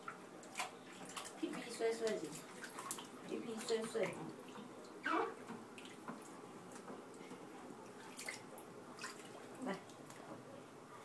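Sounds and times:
water splashing in bathtub: 0.0s - 10.3s.

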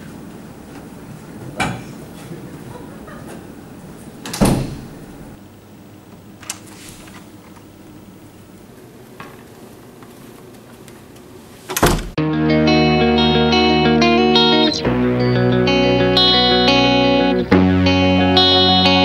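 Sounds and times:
door banging shut: 4.2s - 5.2s, 11.7s - 12.2s.

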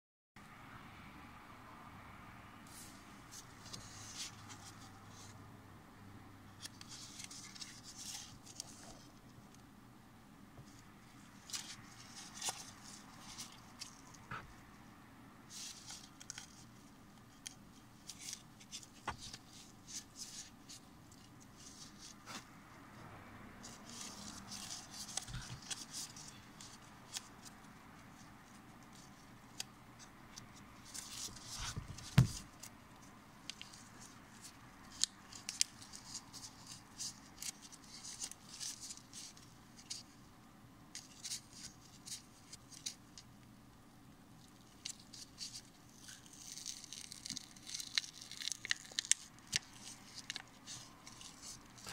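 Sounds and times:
plastic film crinkling: 44.4s - 51.9s.

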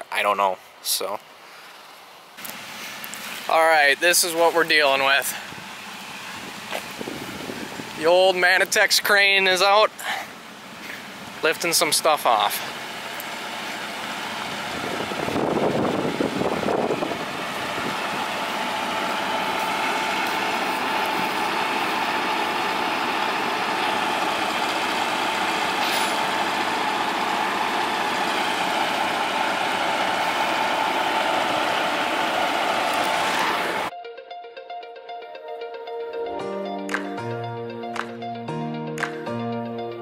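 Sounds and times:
diesel engine running: 0.8s - 33.9s
steady whine: 10.4s - 33.9s.

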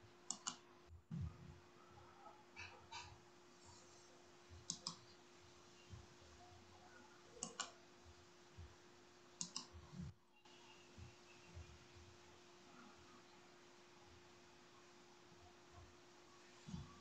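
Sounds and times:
faint steady hum: 0.0s - 17.0s
sharp clicks: 0.3s - 0.6s, 9.4s - 9.7s.

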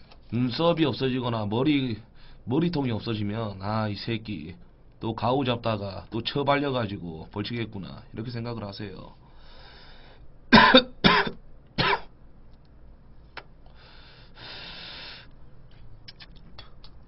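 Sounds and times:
man coughing: 10.5s - 12.1s
man blowing out breath: 13.7s - 15.3s.

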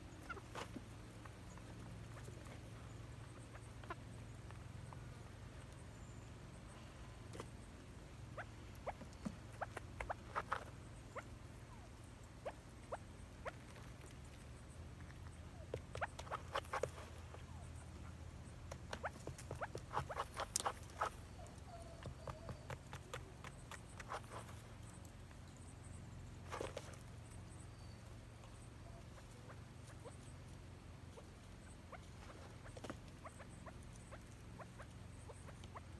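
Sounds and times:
birds peeping: 0.0s - 35.9s
low steady hum: 0.0s - 35.9s
bird scratching in sand: 18.9s - 21.2s, 22.4s - 24.8s.

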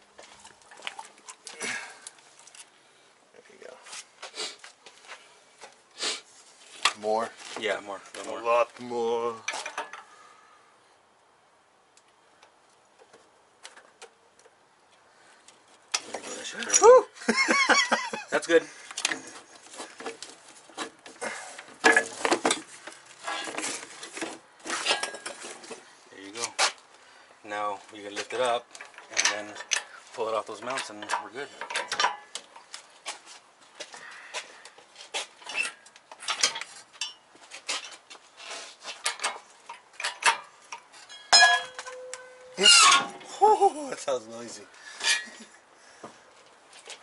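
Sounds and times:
rustling of hoses: 0.0s - 10.4s, 18.4s - 47.0s
metal clatter: 39.0s - 43.2s
metal chains clinking and knocking: 40.0s - 43.2s
loud ringing metallic clang: 41.1s - 43.2s.

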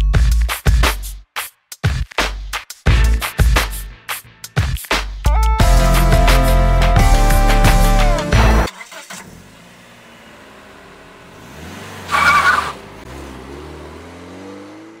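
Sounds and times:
car engine running: 5.6s - 14.4s
tyres screeching: 11.9s - 13.0s.

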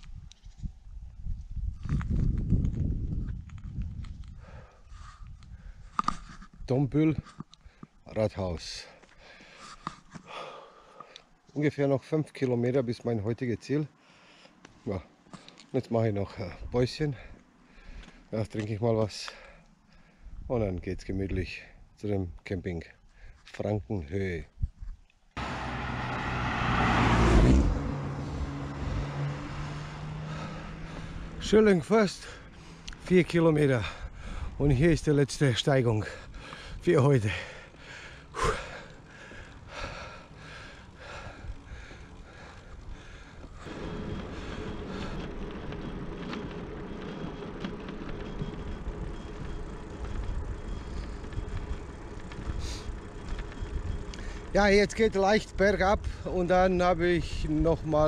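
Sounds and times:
wind rumble on microphone: 0.0s - 7.3s, 24.4s - 25.1s, 33.8s - 35.2s, 41.0s - 58.0s
tyre noise on asphalt: 24.8s - 58.0s
car passing by: 25.4s - 33.1s.

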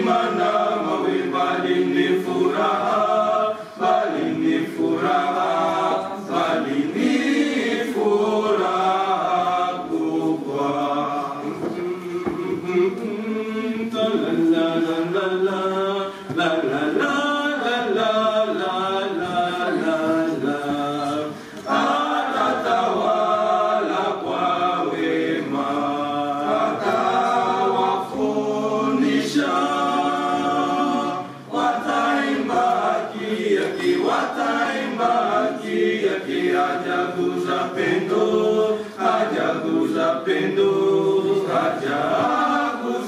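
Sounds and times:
male vocal group singing a cappella: 0.0s - 43.0s.

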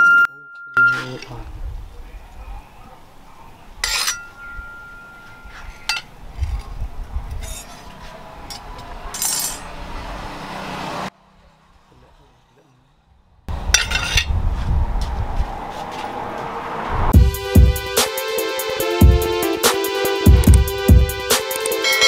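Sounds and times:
metallic clink with ringing: 3.8s - 6.1s, 21.7s - 22.0s
sharp click: 21.4s - 21.8s.

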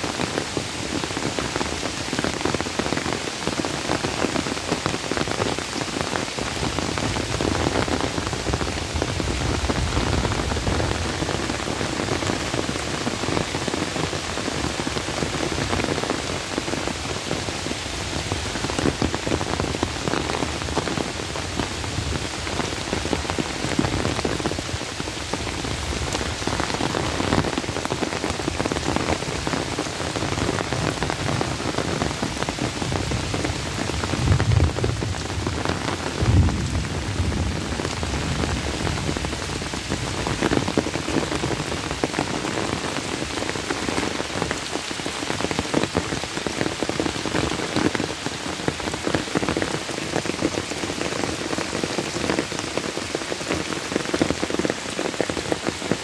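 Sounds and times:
heavy rain on water and leaves: 0.0s - 56.0s.

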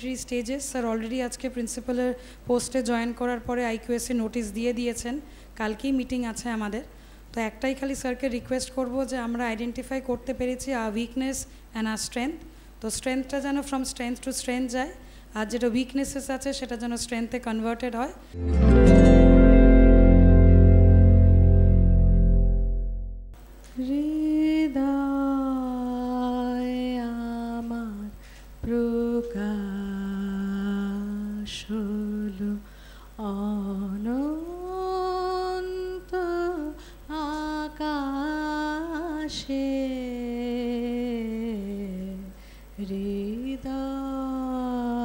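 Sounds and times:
singer breathing: 2.2s - 2.5s, 5.3s - 5.6s, 6.9s - 7.3s, 15.0s - 15.3s, 28.2s - 28.6s, 32.6s - 33.2s, 36.8s - 37.1s, 42.3s - 42.8s.

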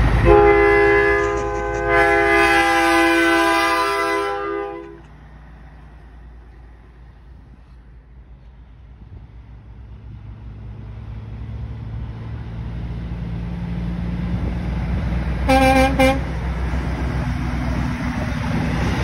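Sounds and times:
truck horn blasts: 0.0s - 5.2s, 15.4s - 16.4s
truck diesel engine rumble: 0.0s - 19.0s.

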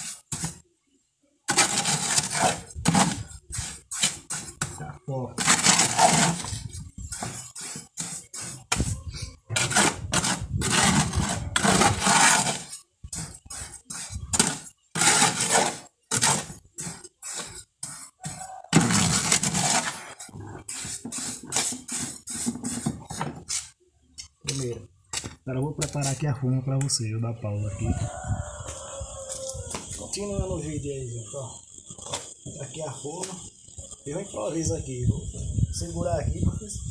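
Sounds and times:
trowel scraping mortar in tub: 0.0s - 0.6s, 1.5s - 23.8s.

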